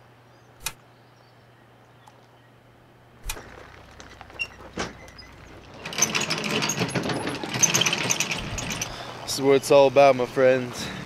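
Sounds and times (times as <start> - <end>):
clicking and clattering: 3.3 - 9.2
faint steady hiss: 8.9 - 11.0.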